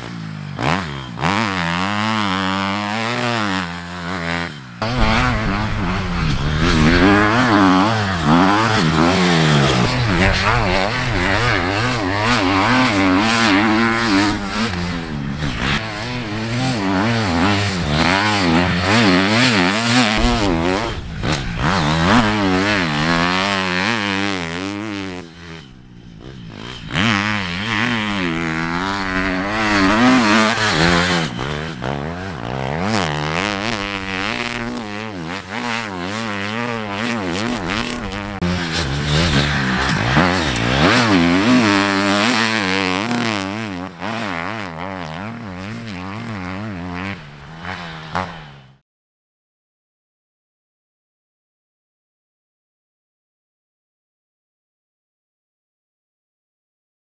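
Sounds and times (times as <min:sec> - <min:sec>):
motocross bike engine revving: 0:00.0 - 0:48.8.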